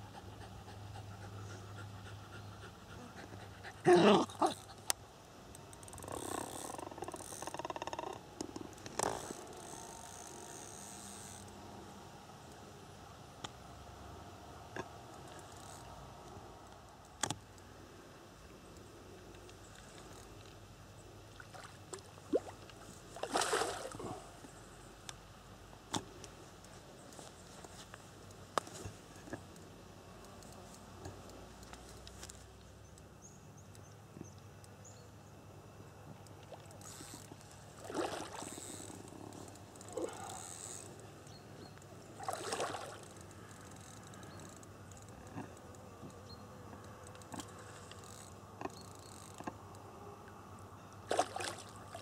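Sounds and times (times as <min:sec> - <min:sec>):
dog panting: 0:00.0 - 0:04.0
splash into pond water: 0:23.2 - 0:24.0, 0:37.8 - 0:38.4, 0:42.2 - 0:43.0, 0:51.1 - 0:52.0.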